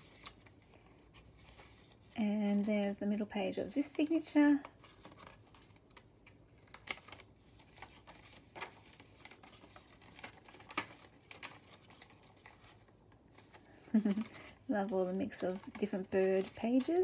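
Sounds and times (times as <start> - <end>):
paper pages rustling: 0.0 - 17.0
paper flicks: 6.0 - 12.2.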